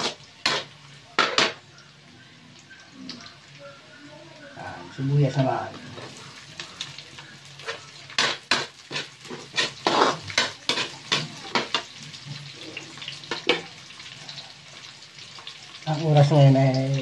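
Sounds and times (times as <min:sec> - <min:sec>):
metal spatula scraping a wok: 0:00.0 - 0:00.7, 0:07.6 - 0:11.9
frying sizzle: 0:00.0 - 0:17.0.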